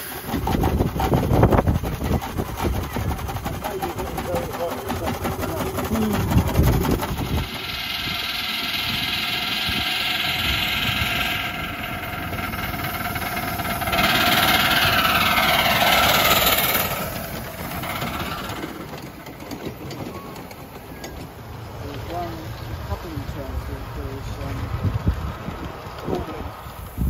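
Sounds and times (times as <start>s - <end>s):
steam locomotive hissing: 0.0s - 27.0s
train wheels clicking over rail joints: 0.0s - 27.0s.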